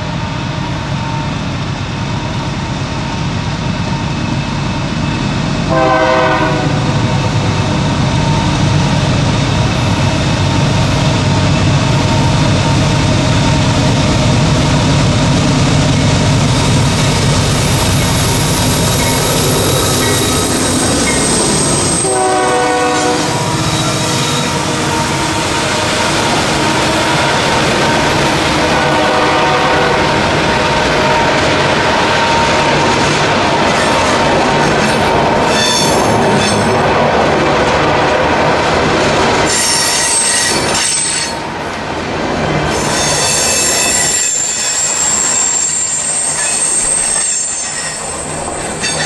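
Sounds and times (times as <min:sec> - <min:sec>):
diesel freight train rumbling: 0:00.0 - 0:49.0
train horn blasts: 0:05.7 - 0:07.4, 0:21.2 - 0:28.0, 0:28.6 - 0:31.5.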